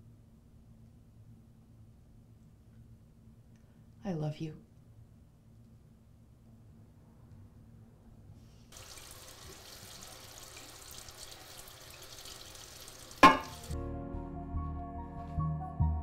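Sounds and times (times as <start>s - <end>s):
dishes clattering: 13.2s - 13.7s
tap running into a sink: 13.2s - 13.8s
soft music: 13.2s - 16.0s.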